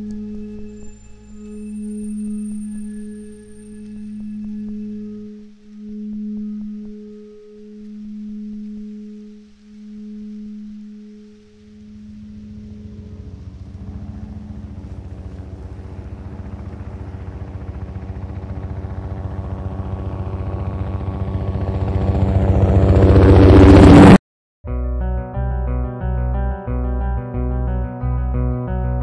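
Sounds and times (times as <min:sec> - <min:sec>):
low sustained tone: 0:00.0 - 0:29.0
helicopter rotor chop: 0:11.8 - 0:24.2.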